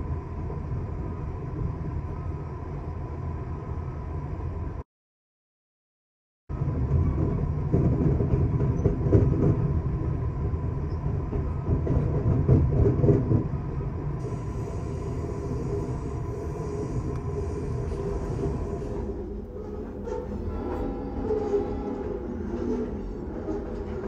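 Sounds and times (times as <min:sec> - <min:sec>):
train rumbling on bridge: 0:06.5 - 0:24.0.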